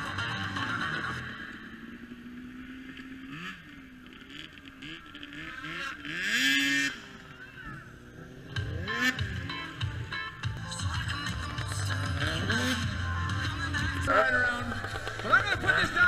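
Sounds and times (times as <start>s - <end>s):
snowmobile engine revving: 0.0s - 16.0s.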